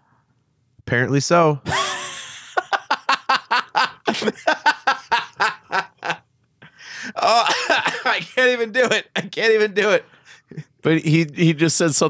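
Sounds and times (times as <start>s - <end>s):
person laughing: 1.7s - 9.4s
person breathing: 6.6s - 7.2s, 10.0s - 10.6s.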